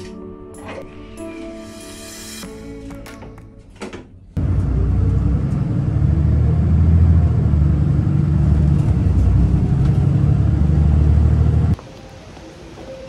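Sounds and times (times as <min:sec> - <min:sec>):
bus engine rumble from inside: 0:04.4 - 0:11.8.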